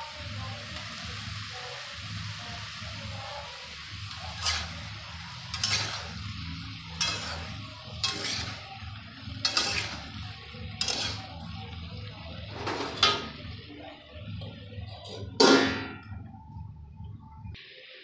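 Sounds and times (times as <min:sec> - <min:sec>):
frying sizzle: 0:00.0 - 0:16.6
spatula scraping a metal pan: 0:04.0 - 0:11.6.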